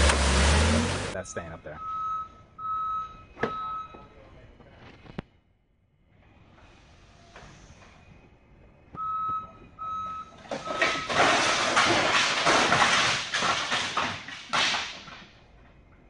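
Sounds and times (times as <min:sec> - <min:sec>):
forklift warning beeps: 0:01.1 - 0:04.2, 0:08.9 - 0:11.1
wooden pallets crashing to floor: 0:10.4 - 0:15.4.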